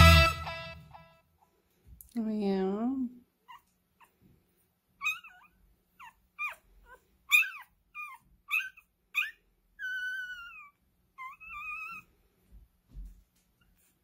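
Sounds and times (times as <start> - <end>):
puppy squeaking and whimpering: 3.4 - 4.2, 5.0 - 12.2.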